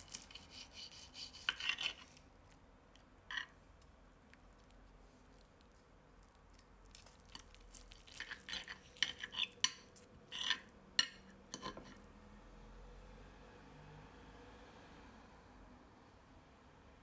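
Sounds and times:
cutlery scraping a ceramic plate: 0:00.1 - 0:02.2, 0:03.3 - 0:03.6, 0:08.1 - 0:12.0.

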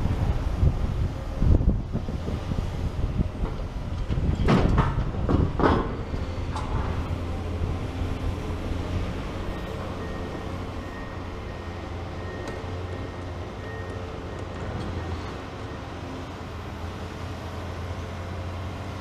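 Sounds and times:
excavator diesel engines running: 0:00.0 - 0:19.0.

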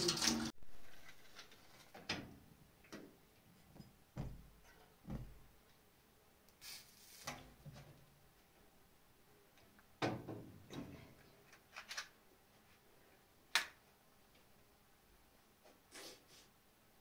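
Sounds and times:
water running from tap: 0:00.0 - 0:00.6
dull thuds: 0:04.1 - 0:05.5
hissing scrape: 0:06.6 - 0:07.4.

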